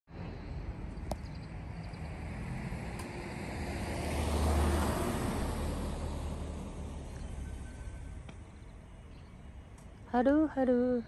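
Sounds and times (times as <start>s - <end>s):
car passing by: 1.4s - 8.4s.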